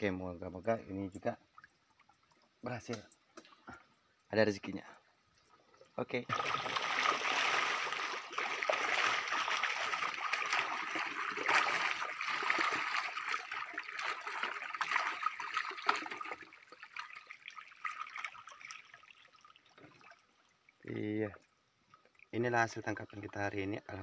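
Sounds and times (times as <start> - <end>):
water running off net: 6.3 - 20.2
fish thrashing and splashing: 6.3 - 20.3.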